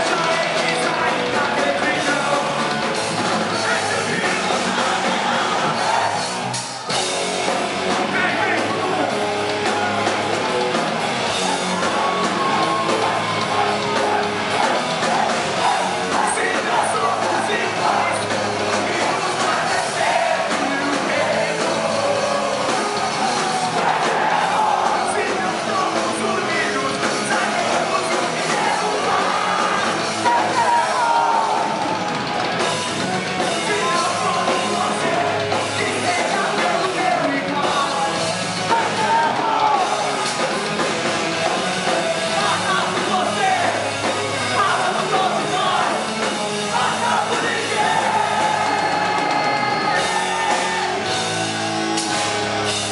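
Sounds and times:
bass guitar: 0.0 - 52.9
drum kit: 0.0 - 52.9
electric guitar: 0.0 - 52.9
person singing into microphone: 33.5 - 39.9.

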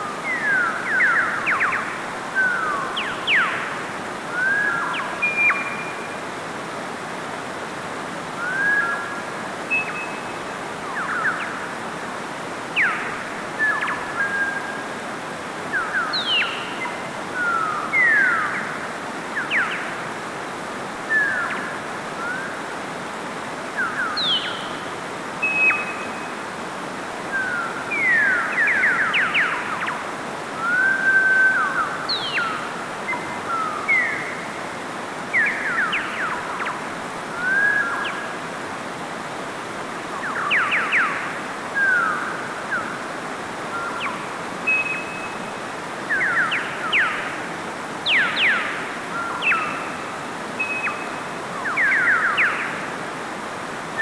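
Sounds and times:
stream rushing over rocks: 0.0 - 54.0
whistled chirps and trills: 4.4 - 6.1, 37.4 - 38.2, 50.6 - 52.7.

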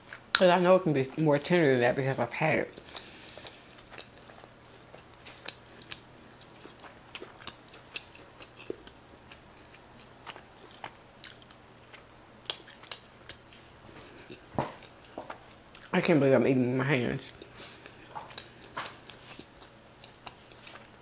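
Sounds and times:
close chewing mouth smacks: 2.7 - 13.4, 14.1 - 15.9, 17.3 - 21.0.

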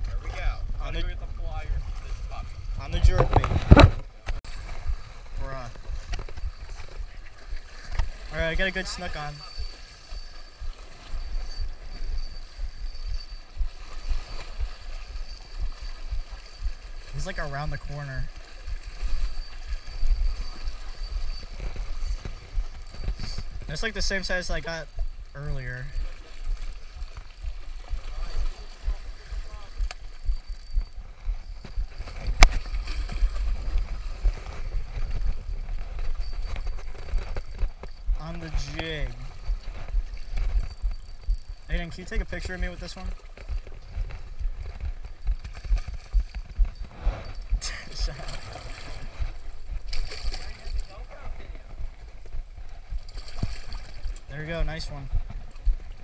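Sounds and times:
wind buffeting microphone: 0.0 - 17.2, 24.9 - 41.9
faint high-pitched tone: 5.4 - 26.2.

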